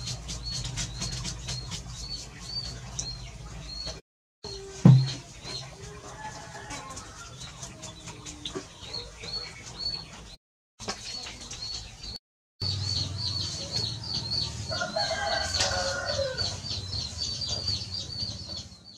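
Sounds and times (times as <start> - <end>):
chickens clucking: 0.0 - 18.9
rooster crowing: 6.1 - 7.3, 14.7 - 16.6.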